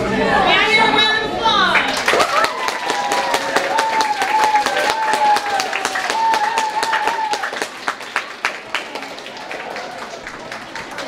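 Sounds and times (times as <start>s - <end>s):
audience clapping: 1.8s - 11.0s
woman cheering: 2.2s - 7.5s.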